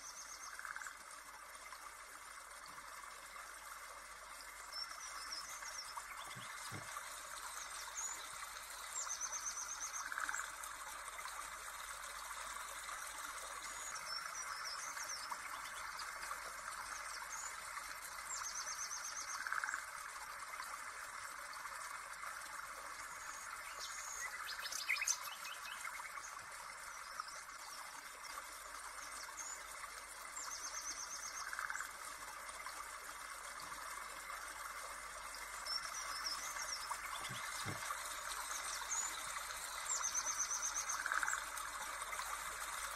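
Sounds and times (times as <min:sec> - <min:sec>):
running water: 0:00.0 - 0:42.9
birds chirping and trilling: 0:35.7 - 0:41.4.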